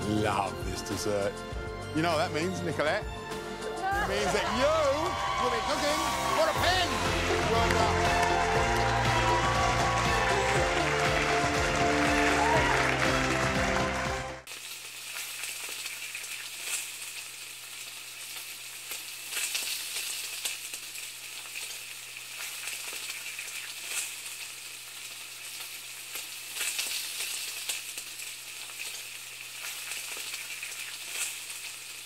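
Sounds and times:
crackling sizzling hiss: 14.4s - 32.0s.

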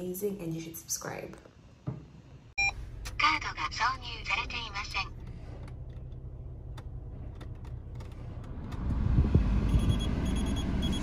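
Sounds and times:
car engine rumbling: 2.6s - 11.0s
rapid high beeps: 9.7s - 11.0s.

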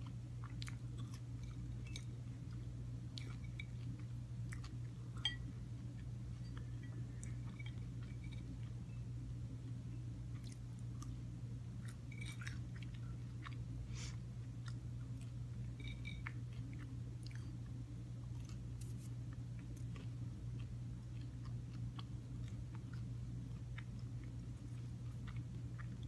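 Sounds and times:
person chewing: 0.0s - 8.9s, 9.7s - 26.0s
low hum: 0.0s - 26.0s.

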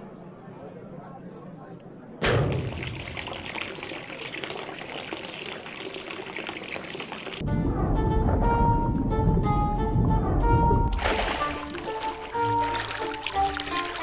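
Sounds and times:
faucet water running into sink: 2.2s - 7.4s, 10.9s - 14.0s
cheerful cartoon music: 7.4s - 14.0s.

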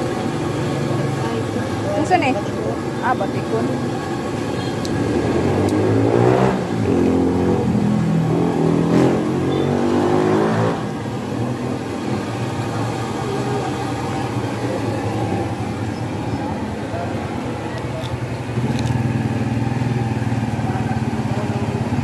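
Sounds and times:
traffic hum: 0.0s - 22.0s
vehicle engine revving past: 5.0s - 13.9s.

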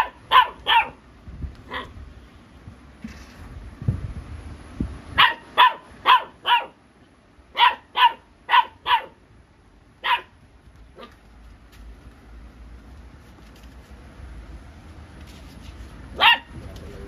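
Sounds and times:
puppy barking: 0.0s - 1.0s, 1.7s - 2.0s, 5.2s - 6.8s, 7.5s - 9.2s, 10.0s - 11.2s, 16.1s - 16.6s.

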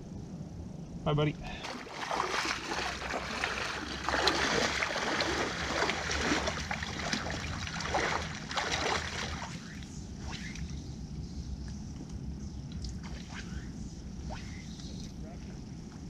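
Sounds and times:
low steady rumble: 0.0s - 16.0s
water splashing against rocks: 1.6s - 9.5s.

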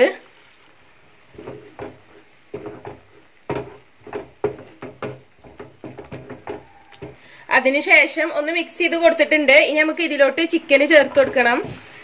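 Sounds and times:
wooden spatula scraping pan: 1.2s - 7.4s, 10.7s - 12.0s.

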